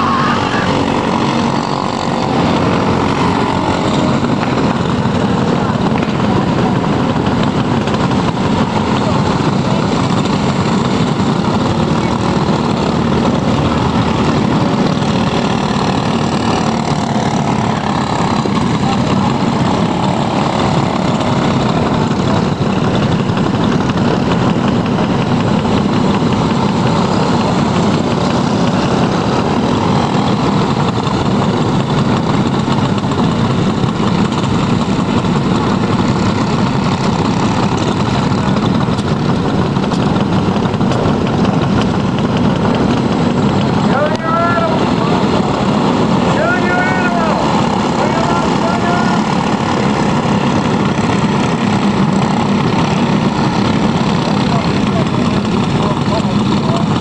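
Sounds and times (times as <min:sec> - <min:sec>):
kart engines droning: 0:00.0 - 0:57.0.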